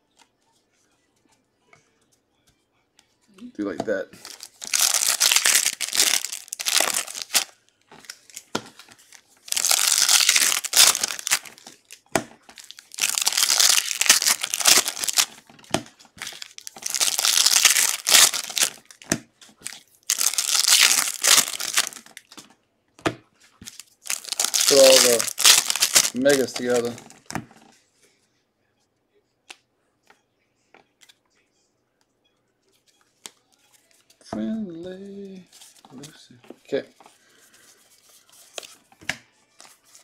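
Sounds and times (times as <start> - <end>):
card pack wrappers crinkling: 4.2 - 22.4, 23.6 - 27.3.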